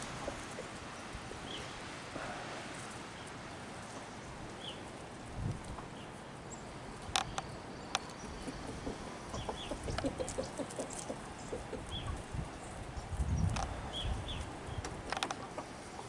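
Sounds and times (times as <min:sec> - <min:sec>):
chickens clucking: 0:00.0 - 0:01.7, 0:04.0 - 0:06.2, 0:06.9 - 0:16.0
sharp clicks: 0:07.1 - 0:08.2.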